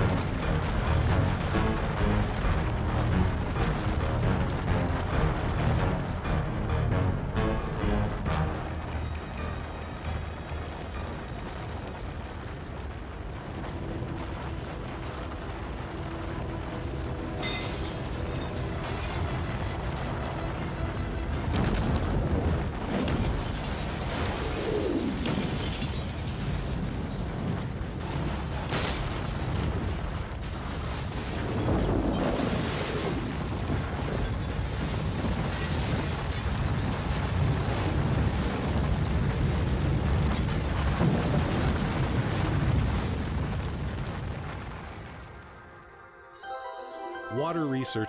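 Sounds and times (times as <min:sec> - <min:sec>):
avalanche rumble: 0:00.0 - 0:46.2
blasting wind: 0:09.4 - 0:45.8.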